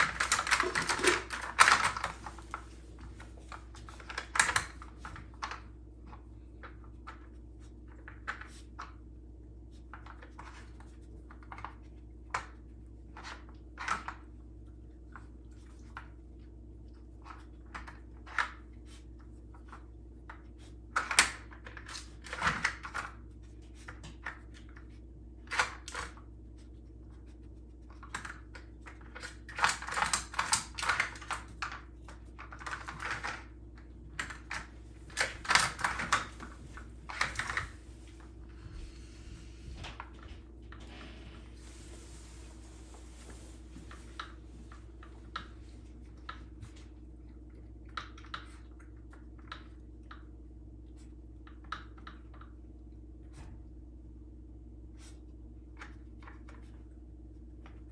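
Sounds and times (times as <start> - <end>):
puppy crunching kibble: 0.0 - 8.9, 9.7 - 38.4.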